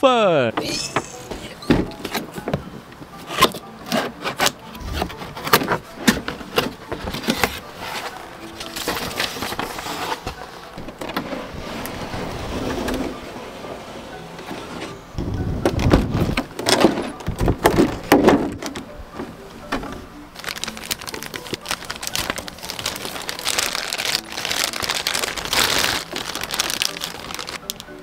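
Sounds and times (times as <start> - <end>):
packaging thuds: 19.7 - 27.8
plastic bag crinkling: 20.4 - 27.9.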